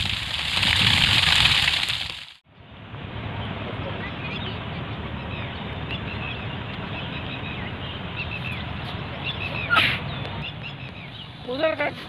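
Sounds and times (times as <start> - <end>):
small birds chirping: 3.4 - 12.0.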